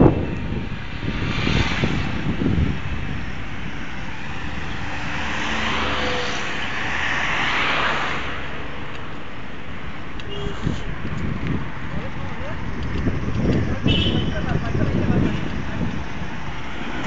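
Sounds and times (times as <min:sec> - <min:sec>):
wind across microphone: 0:00.0 - 0:05.4, 0:10.2 - 0:17.0
bicycle tyres rolling on tarmac: 0:10.6 - 0:17.0.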